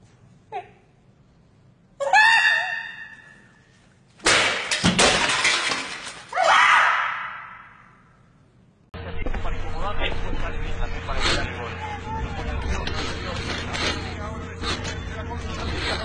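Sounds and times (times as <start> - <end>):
high wavering cry: 2.0 - 3.6
crash of something shattering: 4.3 - 6.4.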